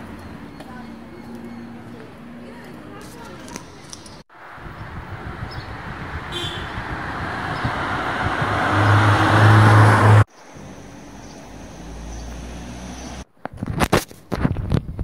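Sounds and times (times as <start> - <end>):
street traffic noise: 0.0 - 14.4
car driving past: 5.7 - 13.2.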